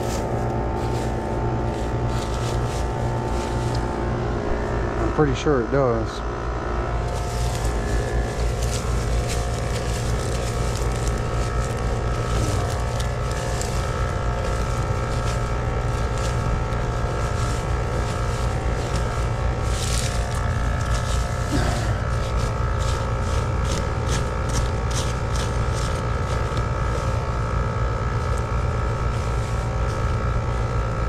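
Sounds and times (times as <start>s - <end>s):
air conditioner humming: 0.0s - 31.0s.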